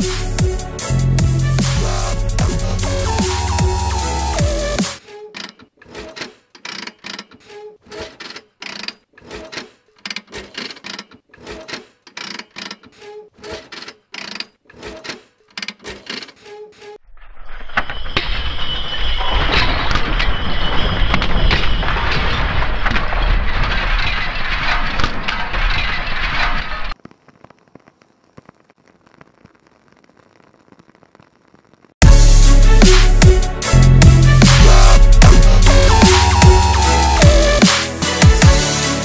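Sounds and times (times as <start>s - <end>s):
metal cogs clicking: 5.0s - 17.0s
dense crackling noise: 17.3s - 32.2s.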